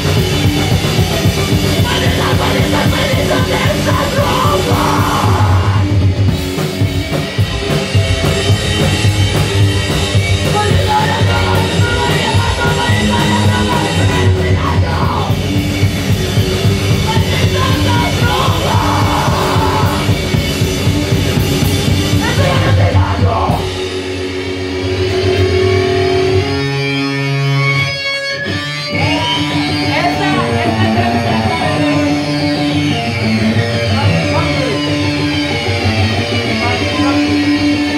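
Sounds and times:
distorted electric guitar: 0:00.0 - 0:37.9
heavy rock band playing: 0:00.0 - 0:37.9
person singing: 0:01.6 - 0:06.0, 0:10.4 - 0:15.5, 0:17.0 - 0:20.3, 0:22.2 - 0:23.7.

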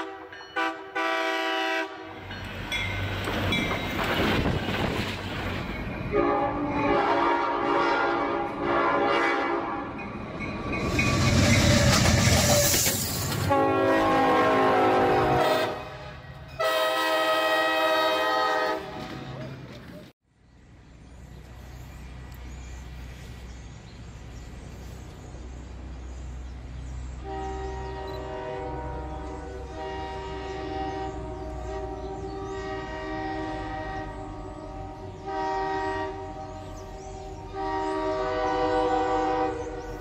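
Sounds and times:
train air horn blasts: 0:00.0 - 0:02.2, 0:06.1 - 0:10.0, 0:13.4 - 0:19.1, 0:27.2 - 0:39.8
train rumble: 0:00.0 - 0:40.0.

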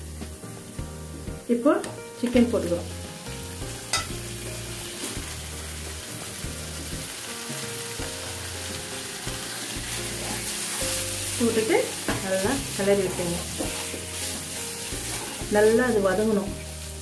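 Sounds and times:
chicken sizzling in hot oil: 0:00.0 - 0:17.0
spatula stirring in pan: 0:08.2 - 0:17.0.

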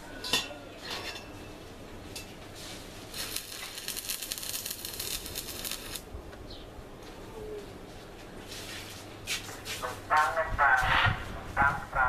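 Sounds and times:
welding arc crackling: 0:03.0 - 0:06.1.

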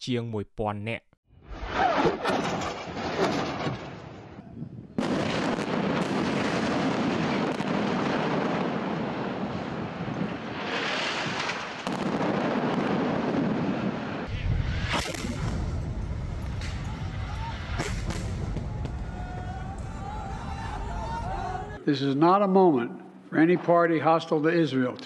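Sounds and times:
rocket fire: 0:01.5 - 0:21.8
explosions blast rumble: 0:04.8 - 0:21.8
sharp crack: 0:10.6 - 0:20.2.

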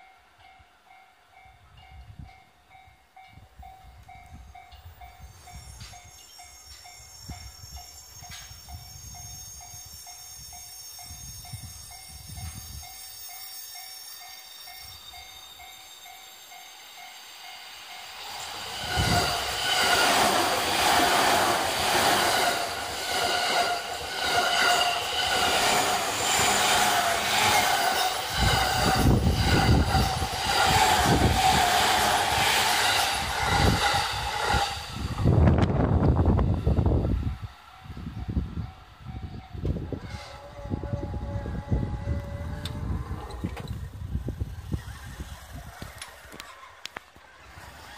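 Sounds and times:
level-crossing warning bell: 0:00.0 - 0:34.9
electric train passing: 0:00.0 - 0:47.9.

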